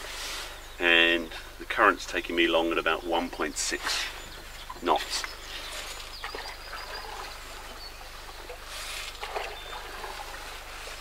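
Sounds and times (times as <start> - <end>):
faint birdsong: 0.0 - 11.0
paddle splashing in river water: 5.5 - 11.0.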